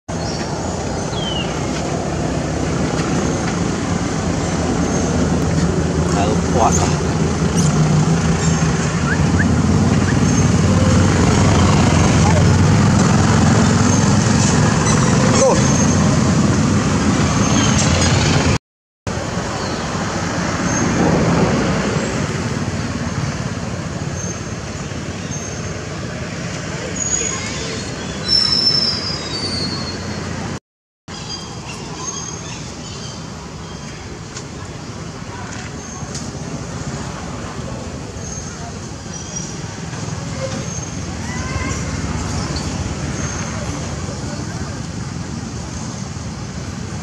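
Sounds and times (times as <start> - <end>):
outdoor background rumble and hiss: 0.1 - 29.0, 29.6 - 47.0.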